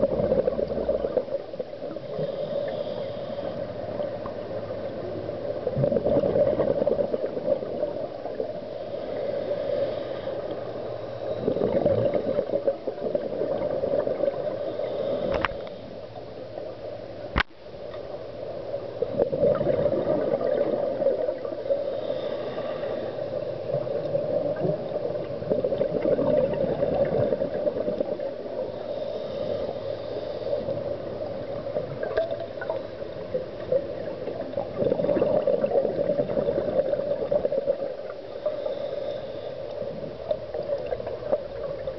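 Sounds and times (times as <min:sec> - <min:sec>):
exhaled bubbles gurgling underwater: 0:00.0 - 0:17.4, 0:18.0 - 0:41.9
regulator hiss: 0:08.6 - 0:11.5, 0:14.5 - 0:16.1, 0:21.6 - 0:24.1, 0:28.4 - 0:31.8, 0:38.2 - 0:40.3.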